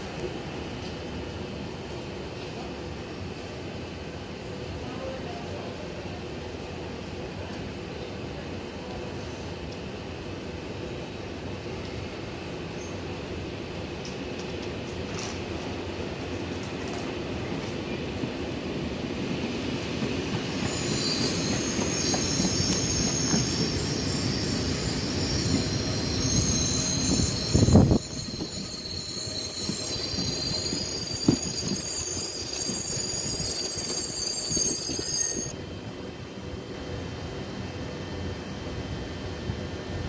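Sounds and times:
train rumbling: 0:00.0 - 0:40.0
high wheel squeal: 0:20.4 - 0:35.6.

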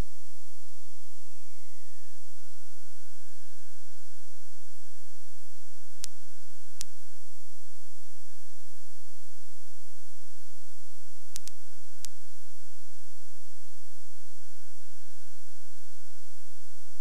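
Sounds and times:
electrical hum and hiss: 0:00.0 - 0:17.0
high whine: 0:00.0 - 0:17.0
sharp clicks: 0:11.3 - 0:12.2.

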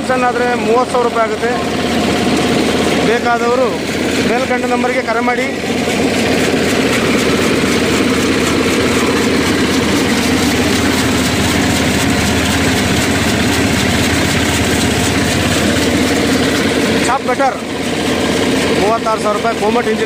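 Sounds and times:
diesel engine running: 0:00.0 - 0:20.0
blades chopping fodder: 0:00.2 - 0:20.0.

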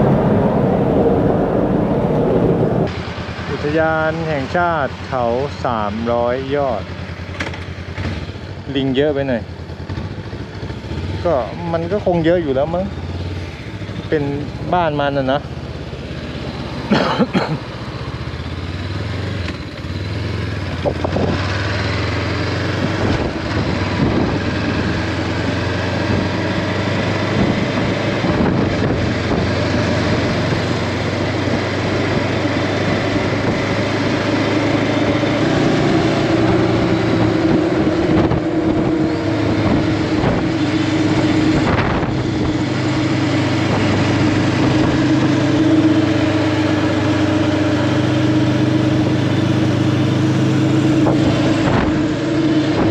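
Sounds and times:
rush of noise: 0:00.0 - 0:06.1, 0:27.3 - 0:52.9
motorcycle engine running: 0:00.0 - 0:52.9.

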